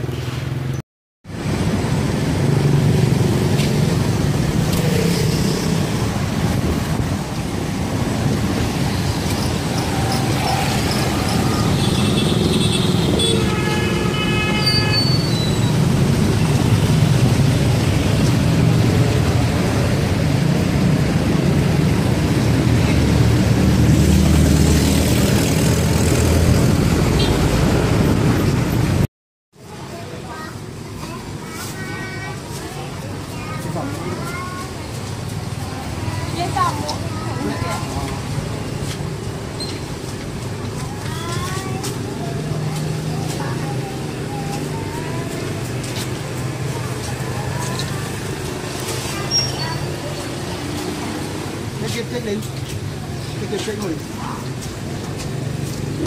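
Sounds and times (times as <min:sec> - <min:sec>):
street traffic: 0:00.0 - 0:56.0.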